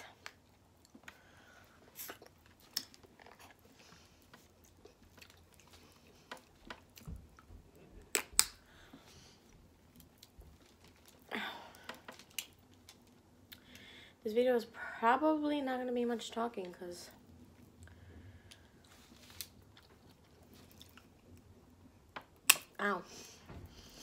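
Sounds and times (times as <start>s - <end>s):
chewing: 0.2s - 7.5s, 18.8s - 21.4s
crab shells cracking: 11.8s - 13.8s.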